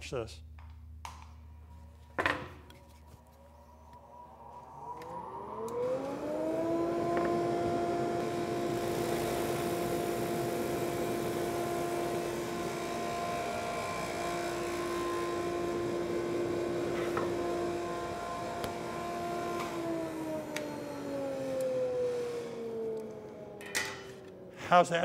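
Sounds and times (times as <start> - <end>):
sander motor whine: 3.2 - 24.5.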